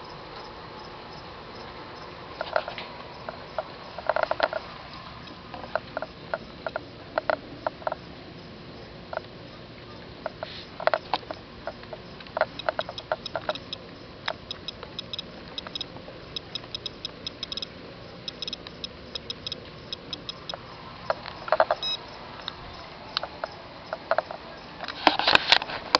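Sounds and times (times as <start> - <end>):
steady hiss: 0.0 - 25.9
geiger counter ticking: 11.7 - 22.0.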